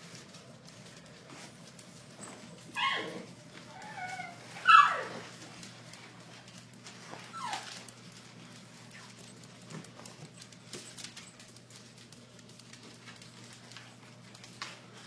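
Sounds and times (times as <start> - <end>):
small dog crying: 2.8 - 5.2, 7.3 - 7.7.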